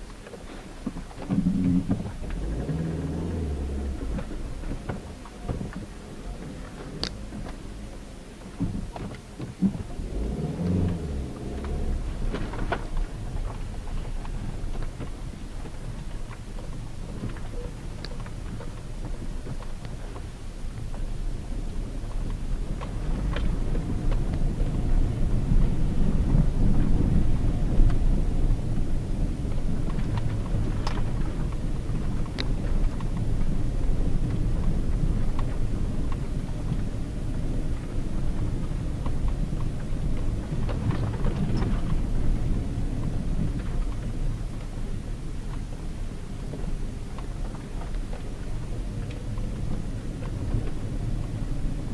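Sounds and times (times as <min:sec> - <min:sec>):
engine and tyre rumble: 0:00.0 - 0:51.9
car knocks and rattles: 0:00.1 - 0:51.9.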